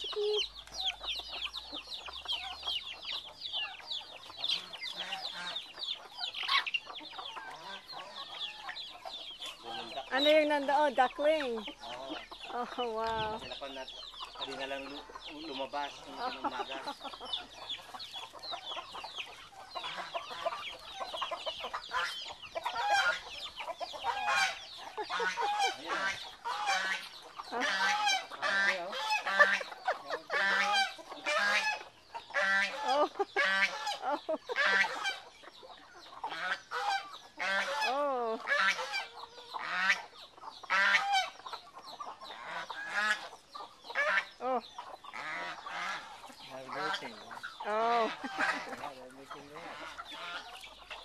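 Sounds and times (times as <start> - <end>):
geese honking: 0.0 - 51.0.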